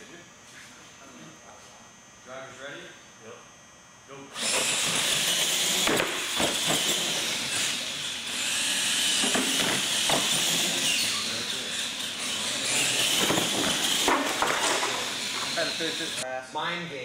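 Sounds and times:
toy trucks whining motors: 4.4s - 16.2s.

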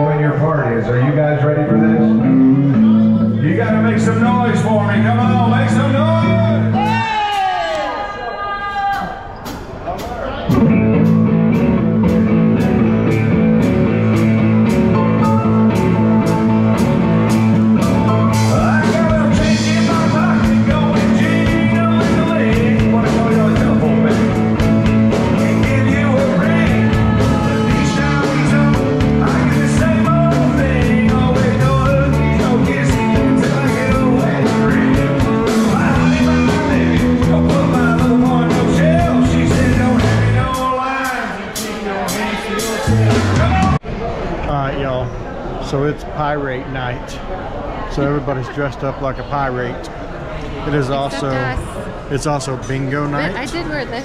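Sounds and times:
live rock band playing: 0.0s - 7.0s, 9.5s - 43.8s
man singing: 0.0s - 7.0s, 18.1s - 43.8s.

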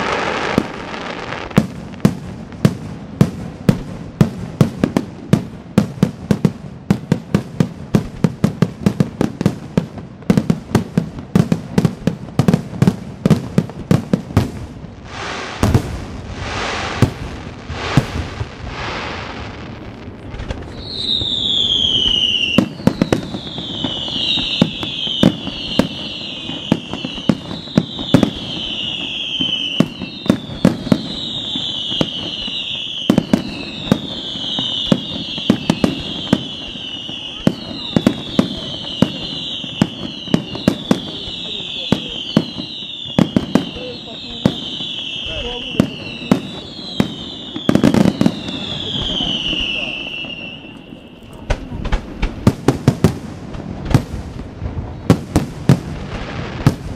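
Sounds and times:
falling firework whistles: 0.0s - 2.2s, 14.4s - 53.2s
fireworks hissing: 0.0s - 5.4s, 10.3s - 56.9s.

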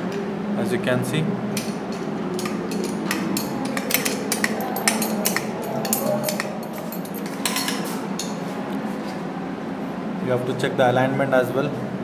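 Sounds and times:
metal clinks and knocks: 1.6s - 8.4s.

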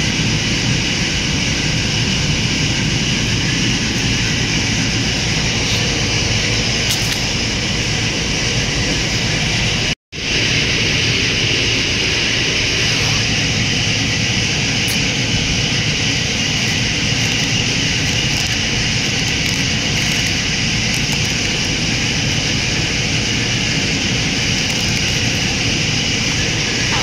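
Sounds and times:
low hum: 0.0s - 27.0s
machine hiss: 0.0s - 27.0s.

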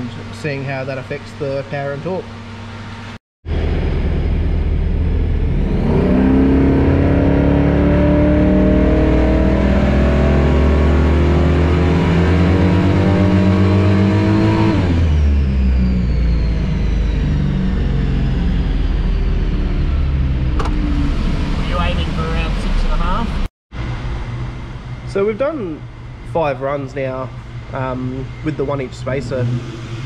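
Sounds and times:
high whine: 0.0s - 30.0s
engine revving at full throttle: 3.5s - 23.4s, 27.0s - 30.0s.

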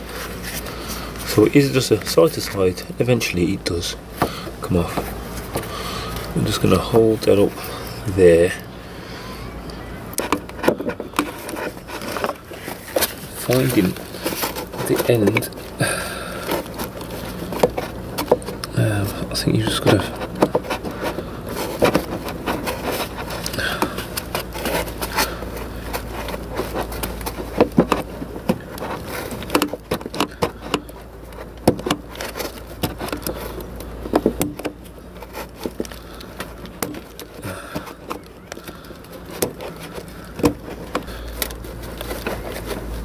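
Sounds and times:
low steady hum: 0.0s - 43.0s
clicks and scrapes of hose coupler: 19.6s - 43.0s.

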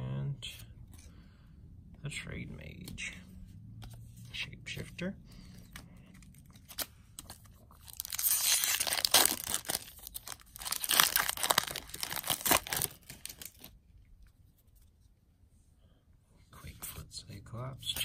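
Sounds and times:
foil wrapper tearing and crinkling: 6.6s - 13.7s.

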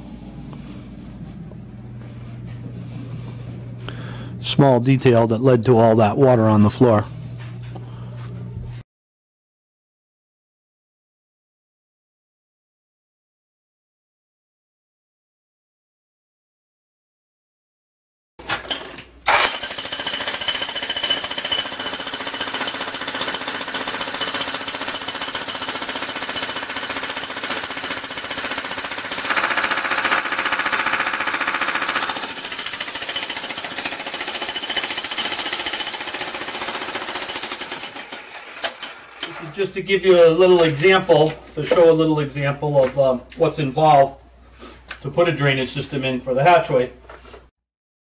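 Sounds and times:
demolition hammer chiselling concrete: 18.4s - 39.5s.

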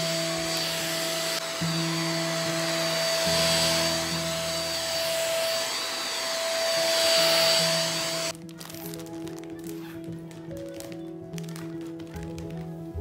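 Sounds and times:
handheld vacuum running: 0.0s - 8.9s.

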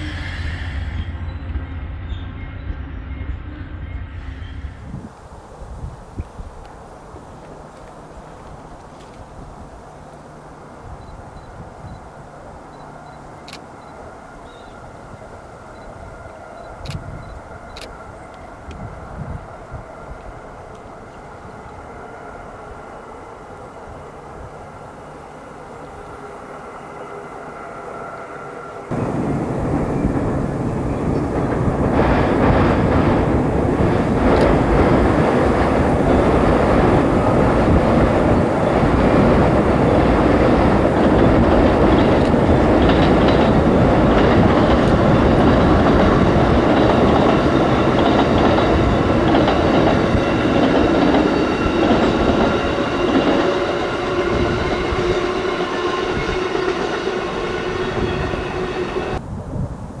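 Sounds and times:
train wheels clattering on rails: 28.9s - 59.2s.

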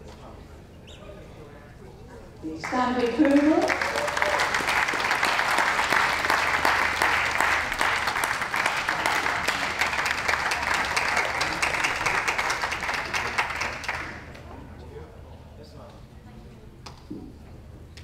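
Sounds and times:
audience applauding: 2.5s - 14.4s.

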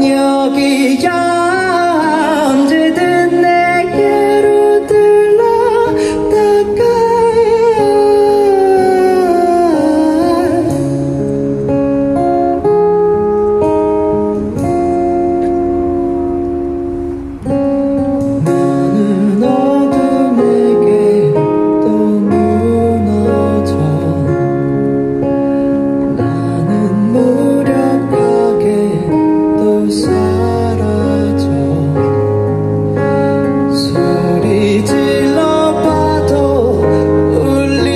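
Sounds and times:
man singing a long note: 0.0s - 11.2s, 18.4s - 24.7s, 26.4s - 32.4s, 33.7s - 37.9s
guitar accompaniment: 0.0s - 37.9s
sustained band chords: 0.0s - 37.9s.

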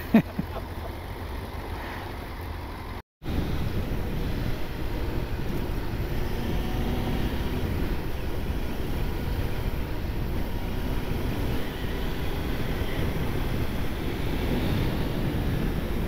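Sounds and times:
motorcycle engine running: 0.0s - 16.0s
wind rushing over microphone: 3.2s - 16.0s.

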